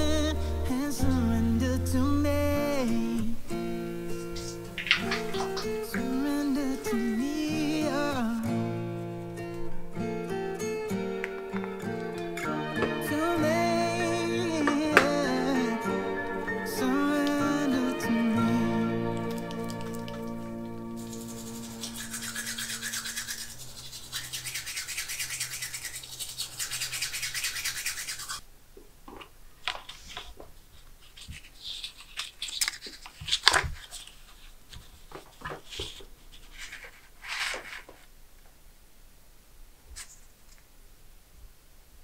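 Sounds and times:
paper rustling: 3.2 - 15.7, 19.1 - 28.4, 29.2 - 38.1, 39.9 - 40.7
hands rubbing against skin: 4.0 - 6.2, 19.1 - 28.4.

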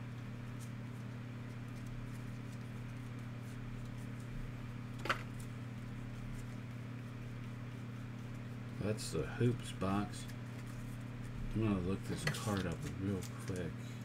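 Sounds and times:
steady low hum: 0.0 - 14.0
cards rustling: 9.4 - 14.0.

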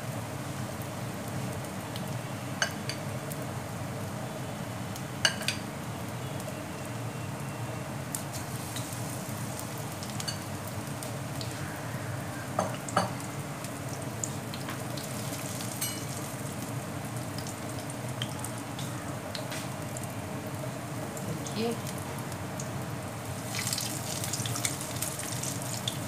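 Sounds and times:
food deep-frying in hot oil: 0.0 - 26.0
oil crackles and pops: 0.6 - 3.5, 8.0 - 12.0, 12.8 - 26.0.

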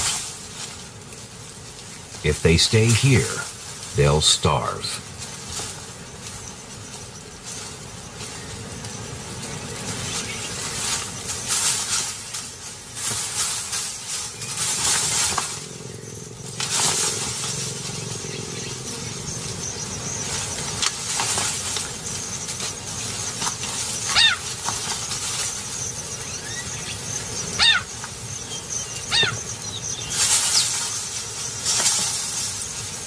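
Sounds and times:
dry grass rustling: 0.0 - 33.0
cheetah cub chirp: 14.3 - 21.1, 21.8 - 31.6.

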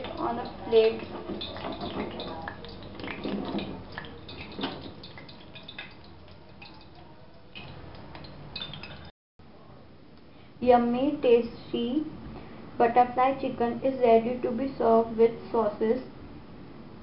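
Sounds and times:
hot oil crackling in a frying pan: 0.0 - 9.1.

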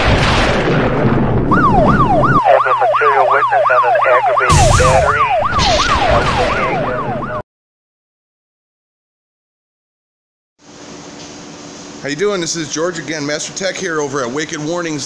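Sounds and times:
emergency siren yelping: 1.5 - 7.4
noisy whoosh: 4.5 - 7.3.

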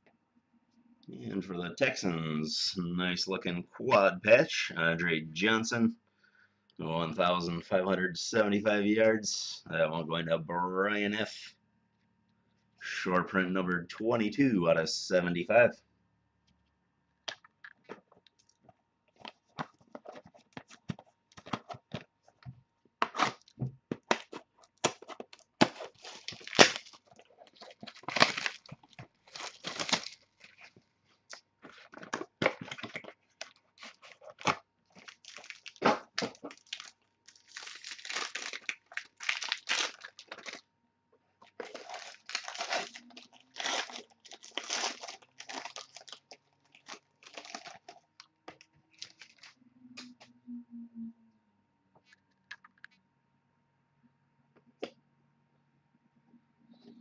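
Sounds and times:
card packaging crinkling: 17.3 - 22.4, 23.0 - 40.6, 41.4 - 49.6.

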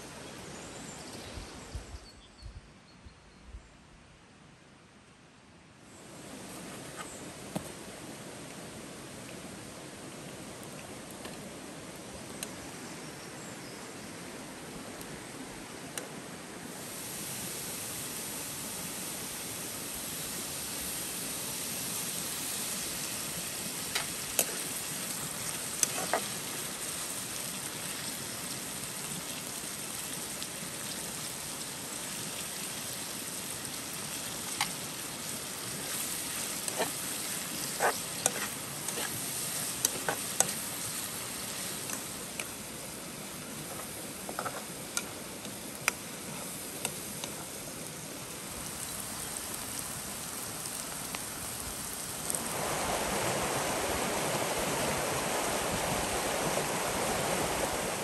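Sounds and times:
onions sizzling in oil: 16.7 - 53.4.

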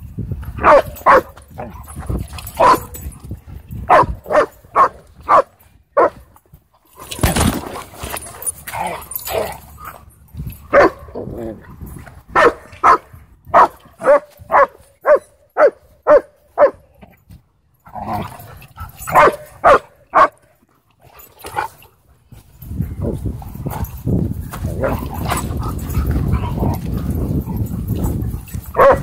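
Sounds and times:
dog barking: 0.6 - 1.3, 2.6 - 2.9, 3.9 - 6.2, 10.7 - 11.1, 12.4 - 16.8, 19.1 - 20.4, 28.7 - 29.0.

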